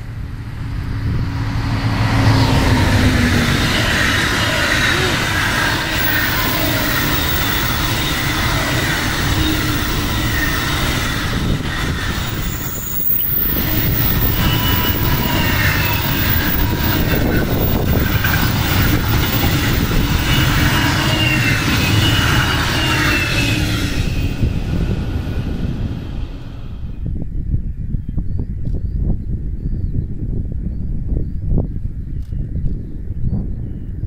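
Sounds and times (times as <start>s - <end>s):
rumble of wheels on rails: 0.0s - 28.0s
wavering wheel squeal: 1.2s - 27.0s.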